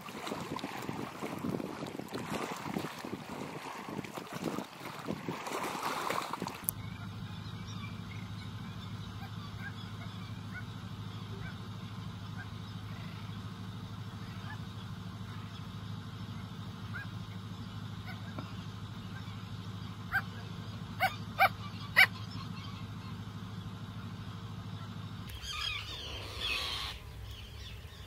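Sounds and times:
wind on microphone: 0:00.0 - 0:06.7
small waves lapping: 0:00.0 - 0:28.0
steady low hum: 0:00.0 - 0:28.0.

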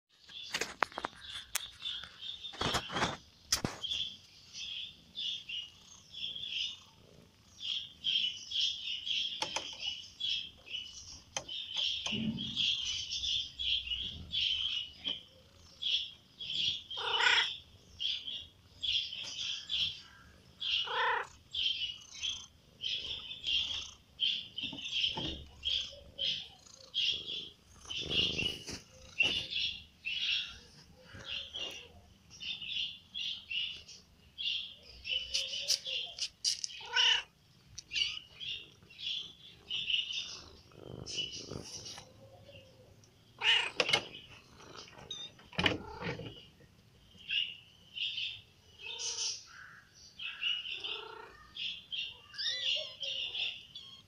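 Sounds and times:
small birds chirping: 0:00.1 - 0:54.0
cat mewing: 0:17.0 - 0:17.6, 0:20.7 - 0:21.4, 0:35.3 - 0:37.3, 0:43.4 - 0:44.0, 0:50.8 - 0:51.6.

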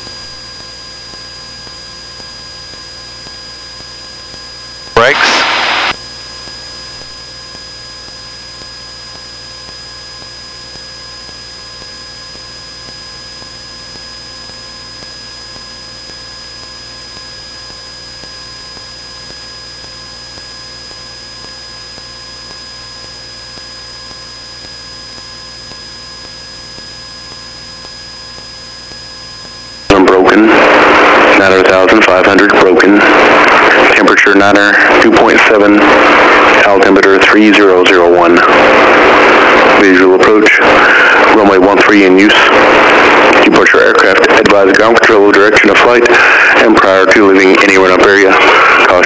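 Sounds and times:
airplane cabin engine hiss: 0:05.0 - 0:05.9.

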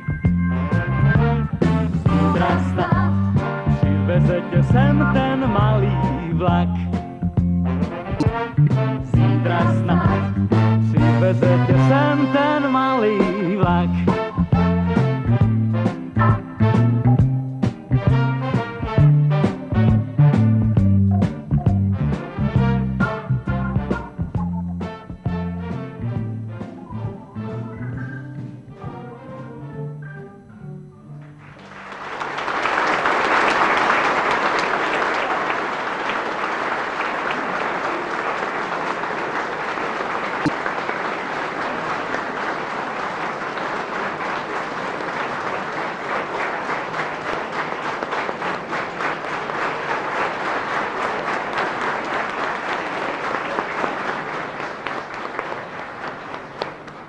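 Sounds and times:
audience applauding: 0:31.2 - 0:57.0.

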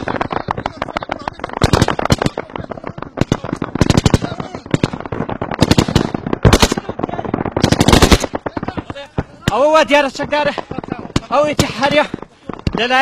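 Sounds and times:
automatic gunfire bursts: 0:00.0 - 0:09.7
single gunshots: 0:00.0 - 0:10.0.

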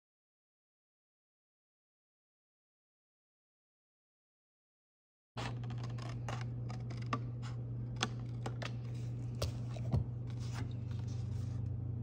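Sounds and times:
scissors snipping cardstock: 0:05.4 - 0:08.8
steady low hum: 0:05.4 - 0:12.0.

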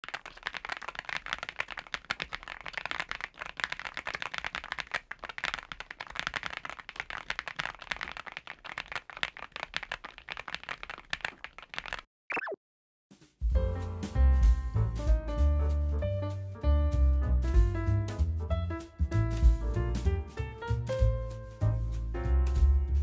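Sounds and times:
mechanical keyboard typing: 0:00.0 - 0:12.0.

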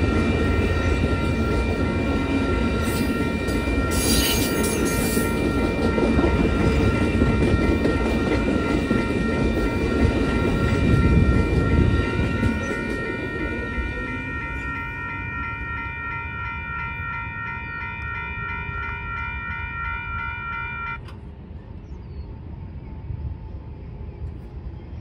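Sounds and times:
train wheels clattering on rails: 0:00.0 - 0:20.3
crossing warning bell ringing: 0:00.0 - 0:21.2.

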